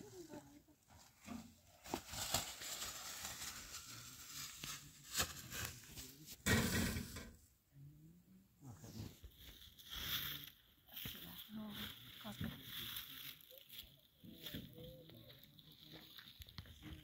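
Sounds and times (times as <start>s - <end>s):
plastic bags rustling: 1.6s - 6.2s.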